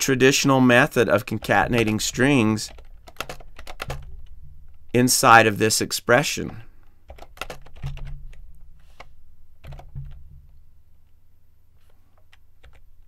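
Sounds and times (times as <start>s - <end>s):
computer keyboard typing: 1.3s - 4.4s, 7.1s - 10.2s, 12.2s - 12.9s.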